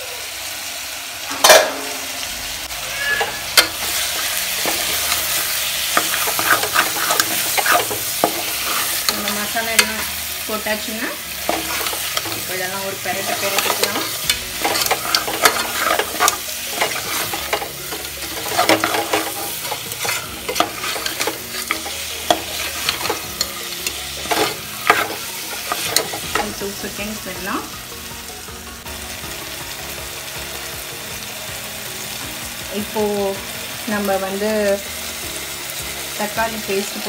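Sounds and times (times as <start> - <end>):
food sizzling: 0.0 - 37.0
metal ladle scraping pot: 3.2 - 10.1, 11.4 - 26.6.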